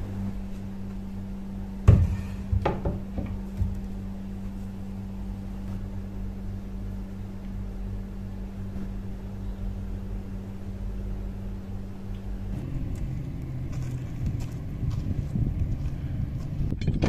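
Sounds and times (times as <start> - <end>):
steady low hum: 0.0 - 17.0
wind rumble on microphone: 12.5 - 17.0
footsteps: 12.9 - 16.7.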